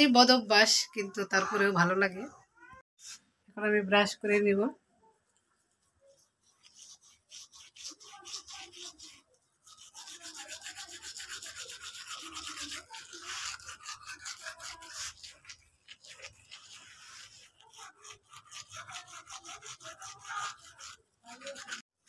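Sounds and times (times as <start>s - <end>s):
toothbrush scrubbing teeth: 5.5s - 22.0s.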